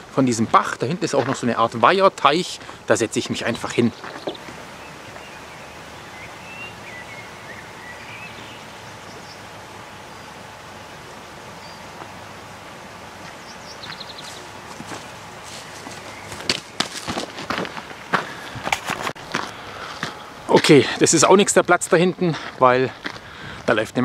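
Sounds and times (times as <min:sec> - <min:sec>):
outdoor background noise: 0:00.0 - 0:24.0
bird trill: 0:03.4 - 0:10.4
faint bird chirps: 0:03.4 - 0:12.3.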